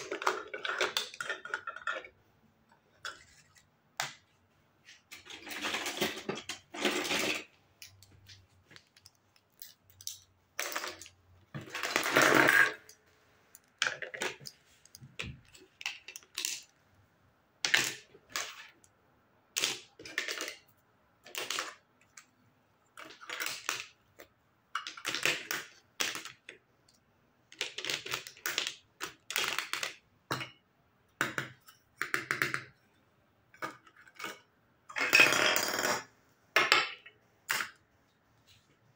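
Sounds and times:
plastic toys clacking on table: 0.0 - 2.2, 5.1 - 13.0, 13.6 - 16.7, 19.5 - 20.7, 21.3 - 22.3, 23.0 - 26.6, 27.5 - 30.6.

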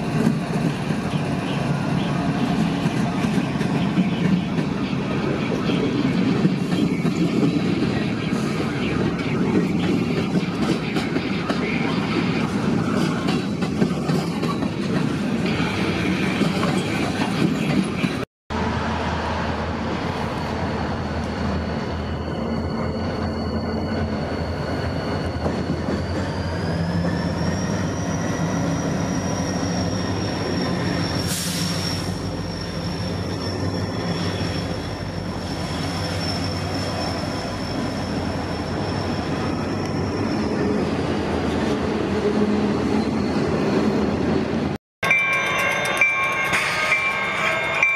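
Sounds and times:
diesel locomotives rumbling: 0.0 - 47.9
high-pitched wheel squeal: 21.7 - 41.0.

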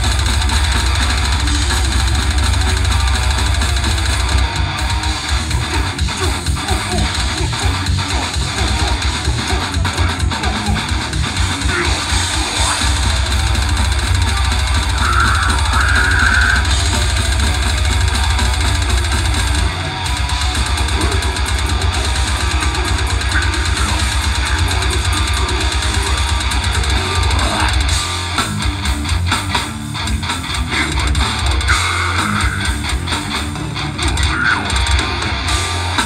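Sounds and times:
distorted guitar and bass: 0.0 - 36.0
drum kit: 0.0 - 36.0
vocalist growling: 4.7 - 13.6, 14.2 - 18.4, 19.7 - 28.0, 30.6 - 35.2.

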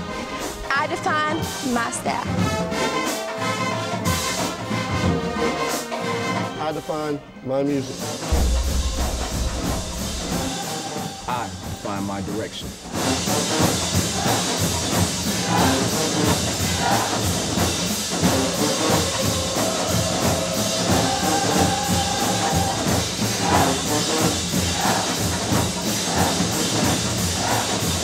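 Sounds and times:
marching band drums: 8.3 - 28.0
brass long notes: 15.6 - 24.9.

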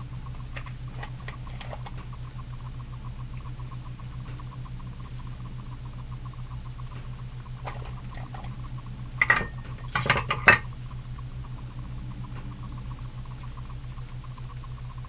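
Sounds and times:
steady low hum: 0.0 - 15.0
kitchenware clinking on glass dish: 9.2 - 10.7.

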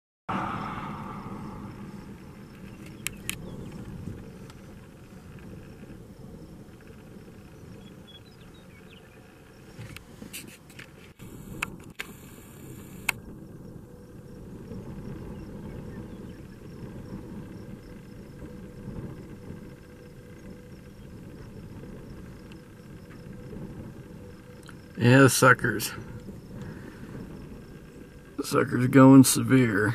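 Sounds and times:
vehicle noise: 0.3 - 5.5
wind rumble: 0.3 - 29.9.

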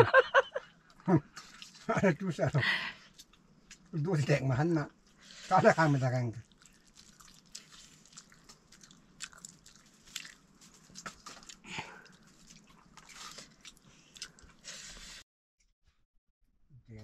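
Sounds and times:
person chewing food: 6.4 - 15.2.

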